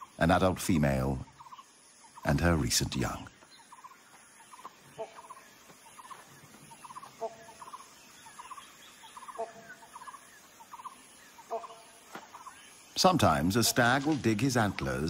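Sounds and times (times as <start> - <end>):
bird chattering: 0.0 - 13.8
faint bird calls: 0.0 - 15.0.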